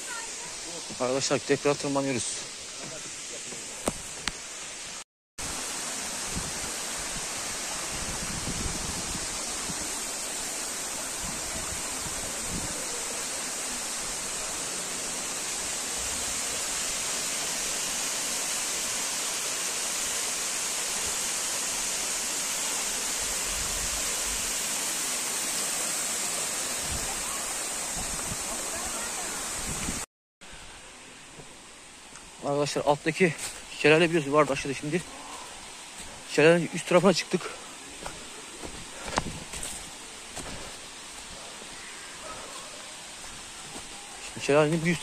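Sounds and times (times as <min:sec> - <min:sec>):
waterfall stream rushing over rock: 0:00.0 - 0:45.0.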